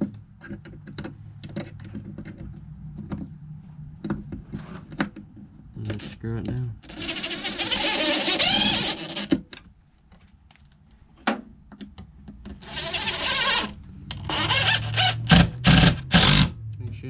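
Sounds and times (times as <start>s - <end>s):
impact driver driving screws: 6.9s - 9.4s, 12.6s - 16.5s.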